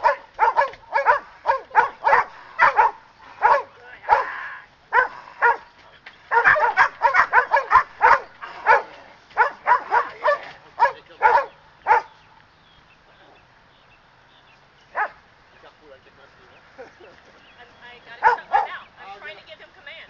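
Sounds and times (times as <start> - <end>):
dog barking in quick volleys: 0.0 - 4.3, 4.9 - 5.6, 6.3 - 12.1.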